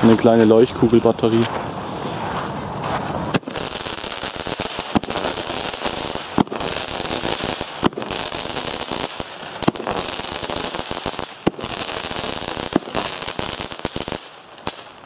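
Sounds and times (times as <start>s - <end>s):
firework hiss: 1.8s - 15.0s
firework battery shots: 3.3s - 15.0s.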